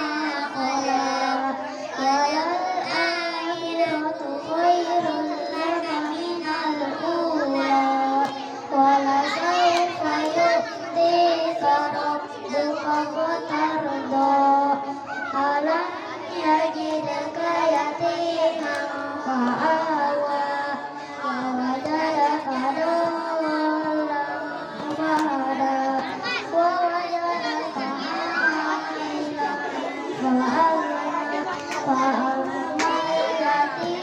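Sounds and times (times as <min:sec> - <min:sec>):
boy singing into a microphone: 0:00.0 - 0:34.0.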